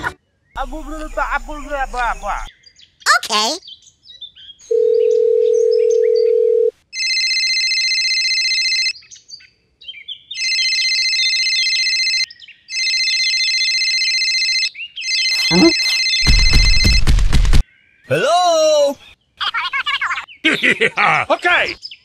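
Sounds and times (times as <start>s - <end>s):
birds chirping: 0.0s - 6.4s, 14.7s - 17.0s, 17.6s - 22.0s
telephone dial tone: 4.7s - 8.9s
telephone ringing: 4.7s - 8.9s, 10.4s - 17.1s.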